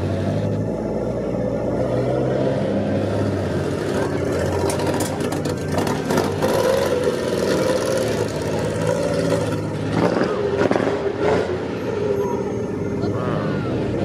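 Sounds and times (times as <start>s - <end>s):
people talking: 12.2s - 14.0s.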